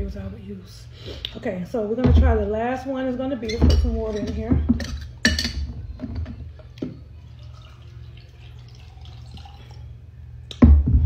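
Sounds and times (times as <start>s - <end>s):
water trickling into a glass: 7.0s - 10.0s.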